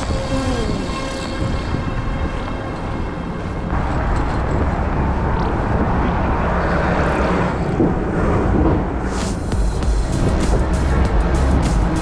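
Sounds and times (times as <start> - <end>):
wind rumble on microphone: 0.0 - 9.5
city street traffic: 0.0 - 12.0
passing traffic rush: 0.0 - 12.0.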